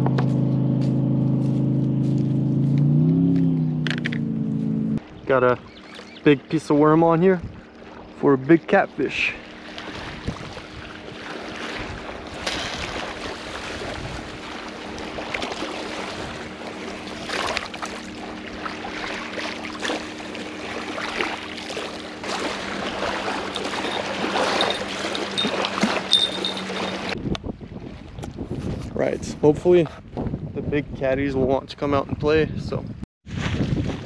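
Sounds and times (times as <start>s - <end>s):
fishing rod knocks and rustles: 3.3s - 4.3s, 23.1s - 27.2s
small waves lapping: 5.0s - 27.2s
wind on microphone: 7.3s - 7.7s, 9.9s - 15.4s, 22.7s - 34.0s.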